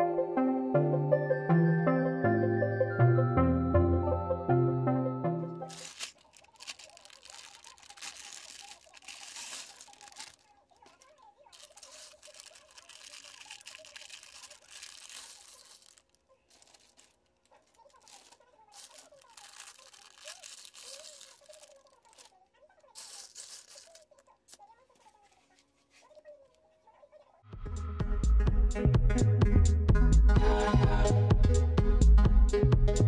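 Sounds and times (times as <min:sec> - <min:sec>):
plastic bag crinkling: 0:05.6 - 0:26.6.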